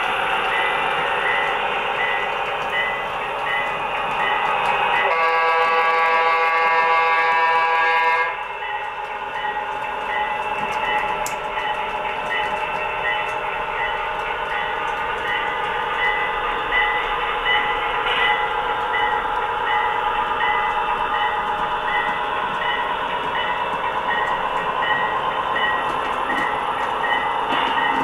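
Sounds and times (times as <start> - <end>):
train horn blast: 5.0 - 8.4.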